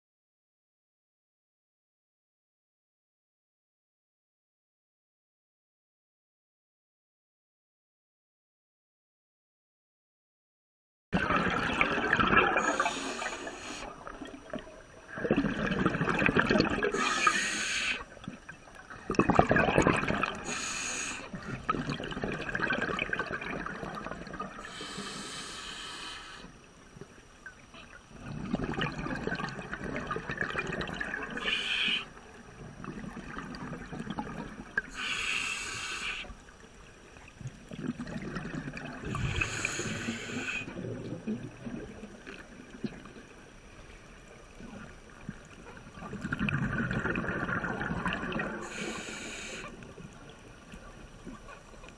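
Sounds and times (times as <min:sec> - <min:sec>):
scuba regulator exhaled bubbles: 0:11.2 - 0:25.5, 0:28.1 - 0:32.0, 0:37.7 - 0:43.1, 0:46.0 - 0:50.0.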